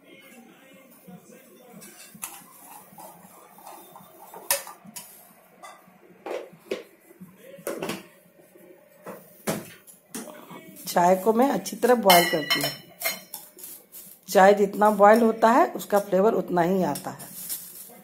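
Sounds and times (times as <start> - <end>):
pots and utensils clinking: 1.8 - 6.5, 11.9 - 14.2.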